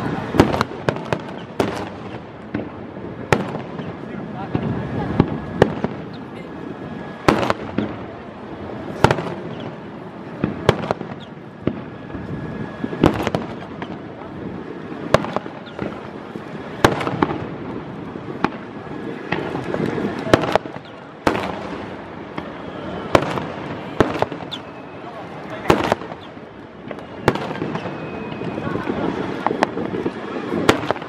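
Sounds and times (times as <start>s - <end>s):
firework shells booming: 0.0s - 6.3s, 7.2s - 8.3s, 8.9s - 31.0s.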